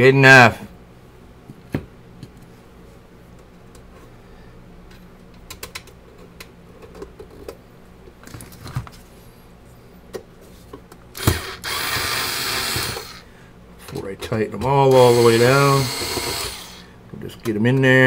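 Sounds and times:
electric screwdriver running: 11.2 - 13.2, 14.9 - 16.8.

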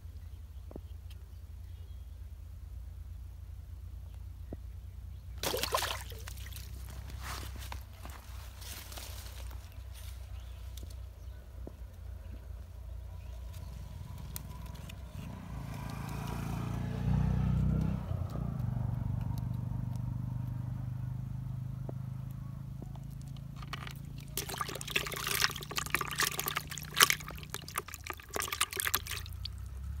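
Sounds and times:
low steady hum: 0.0 - 16.4, 18.0 - 30.0
fish splashing in a bucket: 5.4 - 8.2, 23.6 - 29.8.

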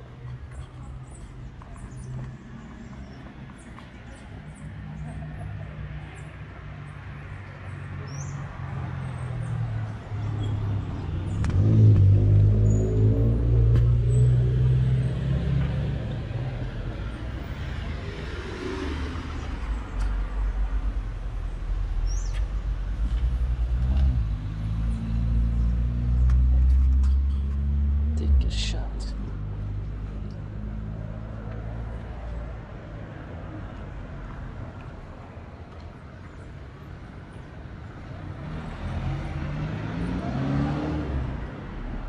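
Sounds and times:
traffic hum: 0.0 - 42.0
car engines running: 8.6 - 42.0
vehicle passing close: 10.6 - 20.3.

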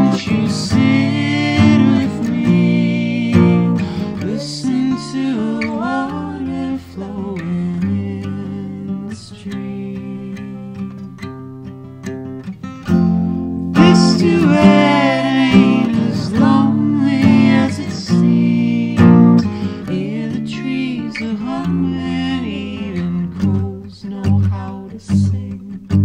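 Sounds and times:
person singing: 0.0 - 10.9, 13.7 - 26.0
acoustic guitar folk song: 0.0 - 26.0.

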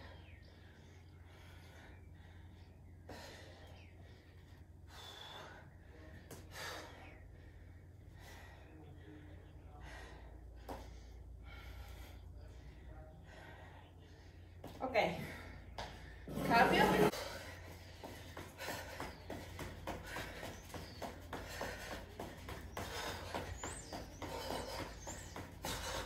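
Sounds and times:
woman breathing hard: 0.0 - 16.3, 17.0 - 26.0.

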